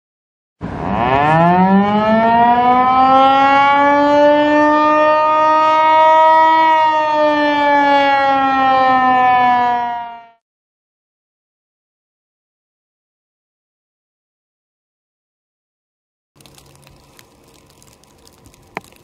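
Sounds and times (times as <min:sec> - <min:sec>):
warning siren wailing: 0:00.6 - 0:10.4.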